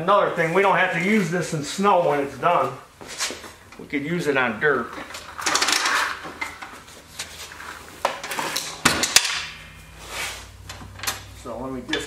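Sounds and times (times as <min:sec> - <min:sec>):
metal clanks on concrete floor: 0:08.1 - 0:10.0.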